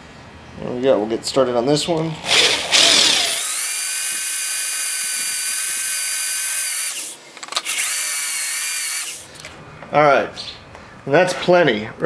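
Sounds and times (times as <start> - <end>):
electric drill boring into steel: 2.2 - 9.3.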